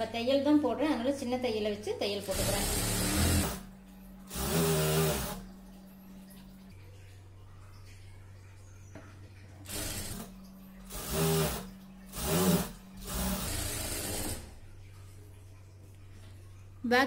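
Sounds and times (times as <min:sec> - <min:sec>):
low steady hum: 0:00.0 - 0:17.0
sewing machine stitching: 0:02.3 - 0:03.7, 0:04.3 - 0:05.4, 0:09.7 - 0:10.3, 0:10.9 - 0:14.5.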